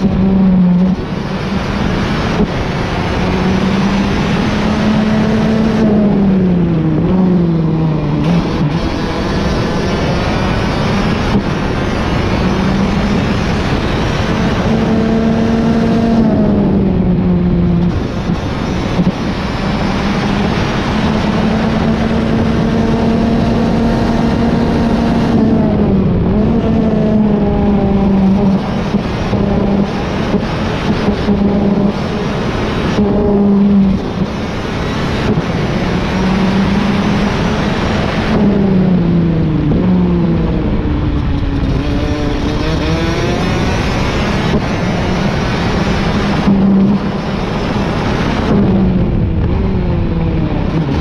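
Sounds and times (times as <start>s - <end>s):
kart engine at racing speed: 0.0s - 51.0s
steady rushing noise: 0.0s - 51.0s.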